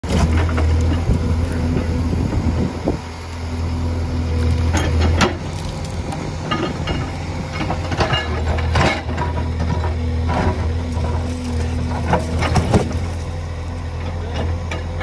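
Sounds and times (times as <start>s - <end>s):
diesel engine running under load: 0.0s - 15.0s
soil pouring from bucket: 4.4s - 6.4s.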